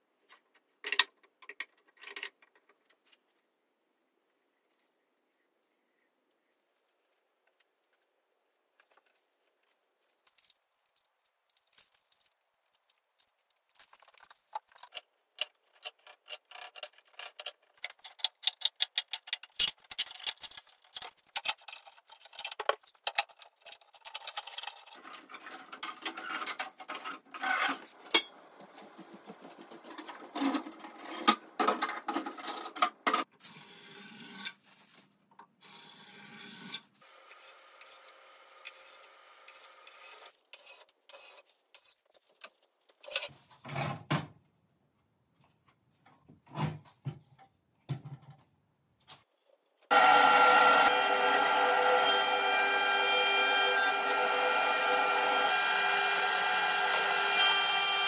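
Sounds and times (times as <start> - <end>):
wooden strips clicking and knocking: 13.6 - 27.3.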